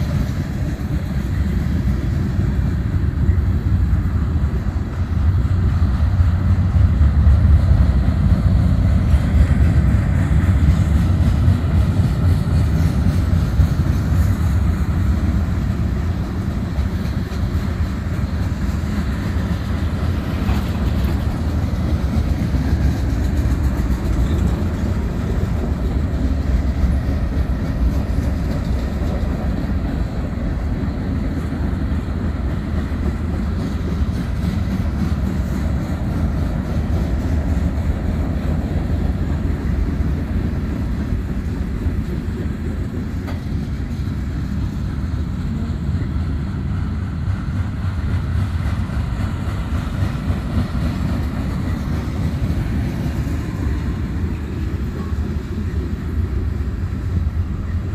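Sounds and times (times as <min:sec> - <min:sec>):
train wheels rumbling on rails: 0:00.0 - 0:57.9
clicking over rail joints: 0:09.1 - 0:30.0, 0:41.0 - 0:44.2.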